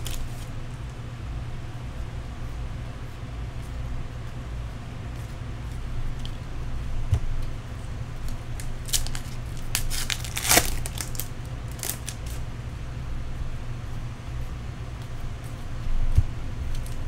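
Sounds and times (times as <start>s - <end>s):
foil wrapper crackling: 0.0s - 0.5s, 8.2s - 12.4s.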